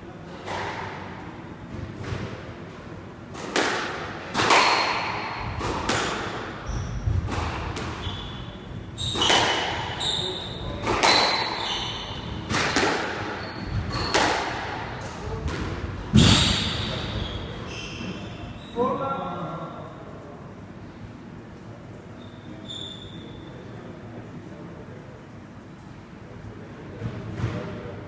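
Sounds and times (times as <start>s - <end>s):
racquets striking squash ball: 0.3s - 18.4s
ball hitting court walls: 3.3s - 8.2s, 9.0s - 17.1s
shoes squeaking on wooden floor: 13.4s - 14.1s.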